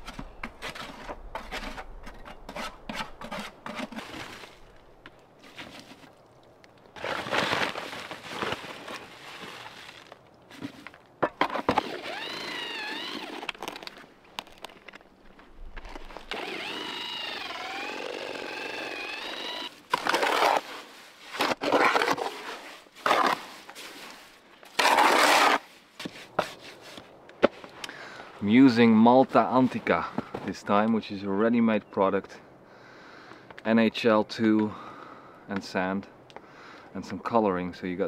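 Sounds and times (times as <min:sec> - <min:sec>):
scraping and handling noise: 0:00.0 - 0:06.3, 0:07.0 - 0:12.3, 0:19.9 - 0:27.9.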